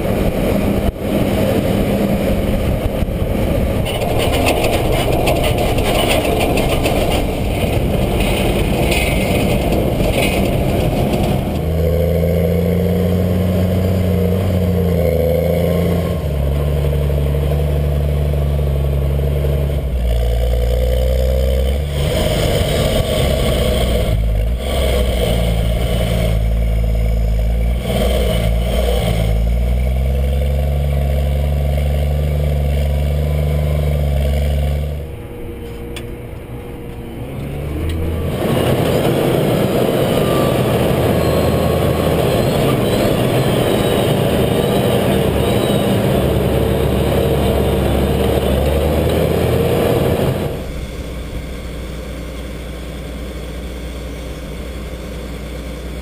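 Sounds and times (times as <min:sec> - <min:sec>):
wind rush: 0:00.0 - 0:11.8
tractor diesel engine: 0:00.0 - 0:56.0
cart wheels rolling with clatter: 0:02.8 - 0:12.0, 0:37.9 - 0:51.8.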